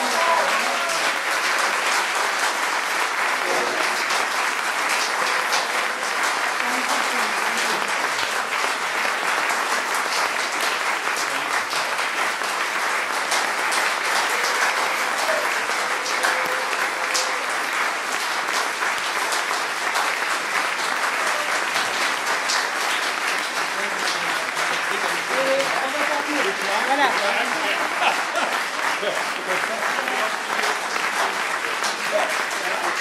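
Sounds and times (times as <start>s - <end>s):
audience applauding: 0.0s - 33.0s.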